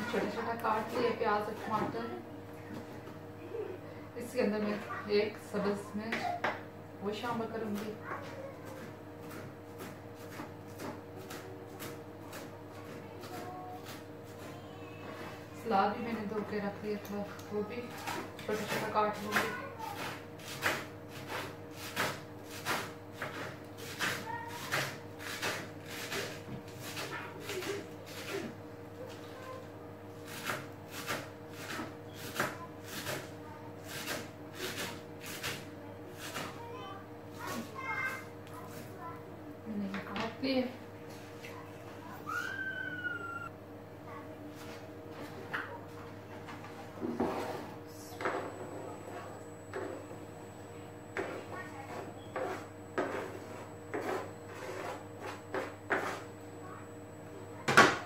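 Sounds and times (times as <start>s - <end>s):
steady low hum: 0.0s - 58.0s
knife chopping on plastic board: 7.3s - 14.5s, 17.9s - 27.6s, 30.3s - 33.3s
faint steady hum: 35.7s - 58.0s.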